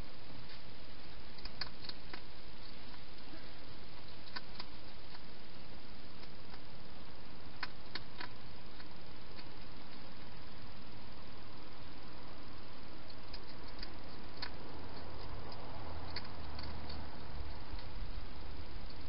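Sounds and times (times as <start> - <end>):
steady hiss: 0.0 - 19.0
hedgehog chewing clicks: 1.3 - 3.3, 3.9 - 5.4, 6.1 - 6.8, 7.4 - 10.4, 13.0 - 18.1.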